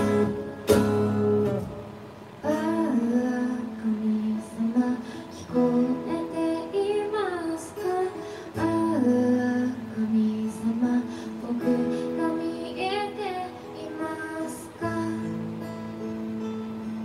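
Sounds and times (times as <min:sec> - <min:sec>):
strummed acoustic guitar: 0:00.0 - 0:17.0
woman singing a slow song: 0:02.4 - 0:15.9.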